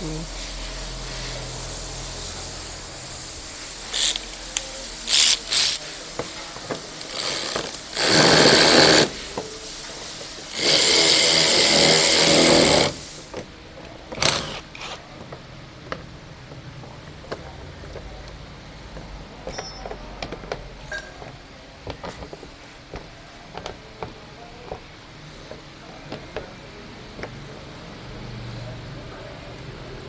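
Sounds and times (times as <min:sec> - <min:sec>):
impact wrench bursts: 0:03.8 - 0:05.8, 0:06.8 - 0:09.3, 0:10.5 - 0:13.2, 0:14.1 - 0:15.0.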